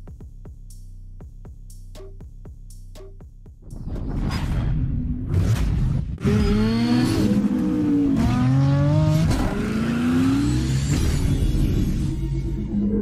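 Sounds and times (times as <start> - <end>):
car engine revving: 5.3 - 13.0.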